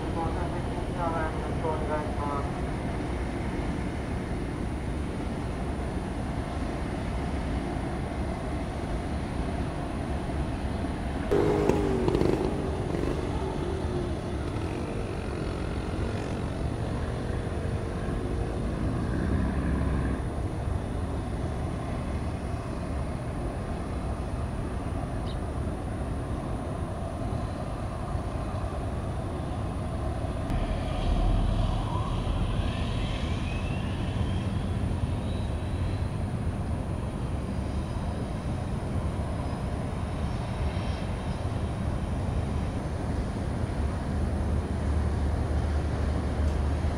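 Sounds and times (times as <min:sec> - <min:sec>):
low ship engine rumble: 0:00.0 - 0:46.9
rising whistle-like glide: 0:30.6 - 0:36.2.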